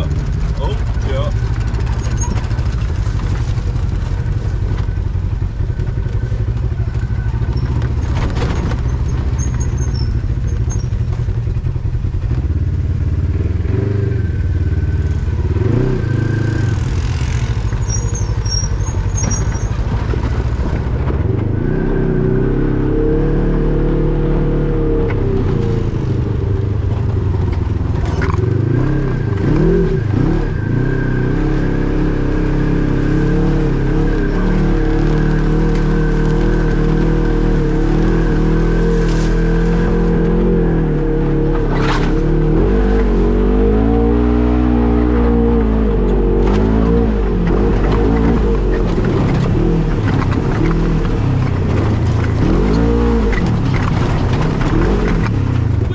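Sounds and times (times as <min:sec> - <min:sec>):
off-road vehicle engine revving: 0:00.0 - 0:55.9
knocks from vehicle on rough trail: 0:06.9 - 0:12.4, 0:16.7 - 0:21.5, 0:46.4 - 0:55.9.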